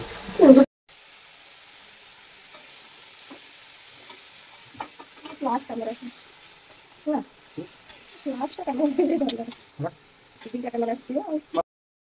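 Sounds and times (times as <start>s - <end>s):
curry sizzling in a pan: 0.0s - 11.6s
metal spatula scraping a pan: 2.5s - 11.6s.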